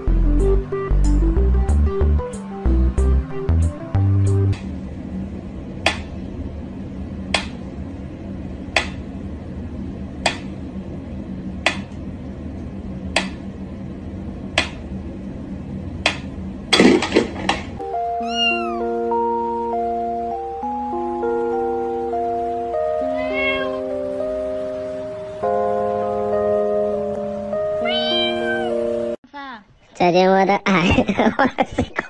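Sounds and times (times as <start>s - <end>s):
light background music: 0.0s - 4.6s, 17.8s - 29.2s
cat meow: 18.2s - 18.9s, 23.0s - 23.9s, 27.8s - 28.8s.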